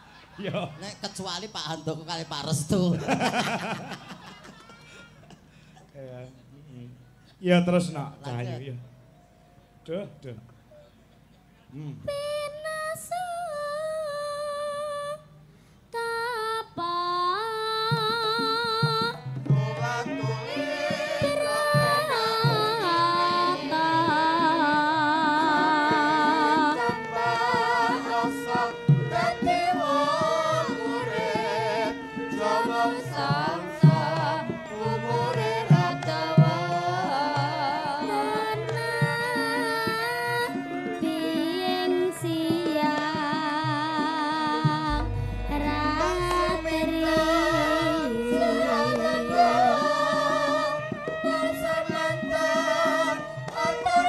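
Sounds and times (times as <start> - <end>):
girl singing into a microphone: 12.0 - 19.3, 21.2 - 27.0, 32.9 - 52.4
drum: 44.7 - 50.4
gamelan: 44.9 - 50.0.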